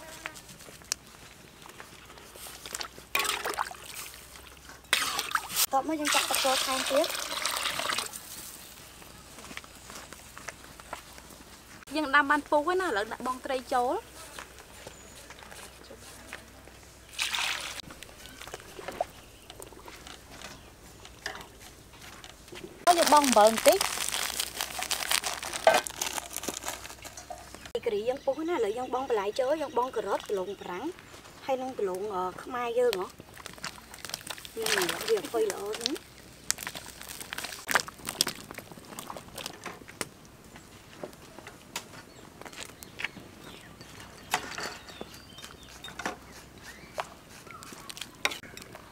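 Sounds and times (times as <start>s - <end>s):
water sloshing and dripping: 2.5s - 8.2s, 17.1s - 20.2s, 33.2s - 39.7s
fish splashing into water: 2.7s - 8.1s, 17.1s - 18.5s.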